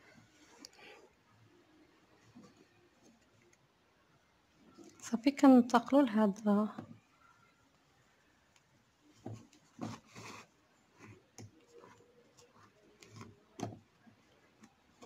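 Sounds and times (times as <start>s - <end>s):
needle and thread through canvas: 9.0s - 15.0s.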